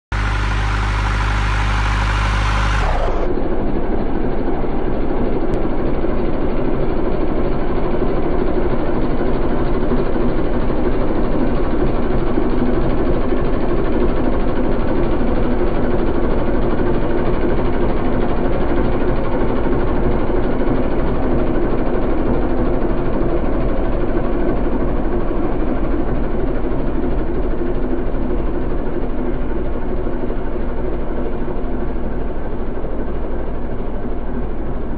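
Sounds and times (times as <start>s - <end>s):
tractor diesel engine under load: 0.0s - 34.9s
bright steady low tones: 0.1s - 3.3s.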